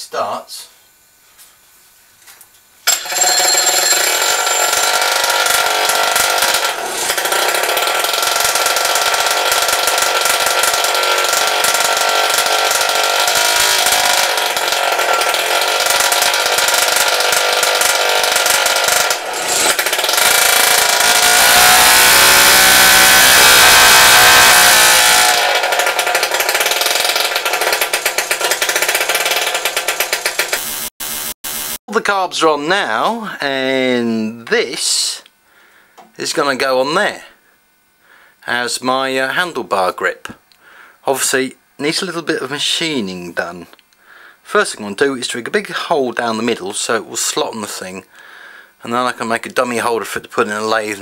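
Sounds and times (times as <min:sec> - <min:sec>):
motorbike engine running: 0:03.0 - 0:31.8.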